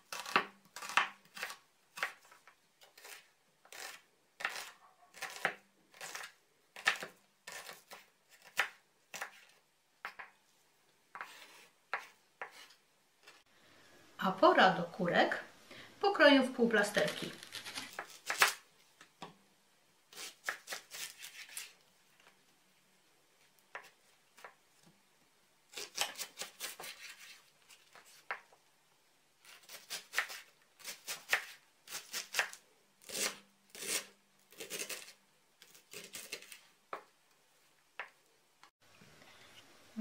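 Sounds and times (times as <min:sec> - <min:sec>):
knife slicing on cutting board: 0:25.8 - 0:27.4.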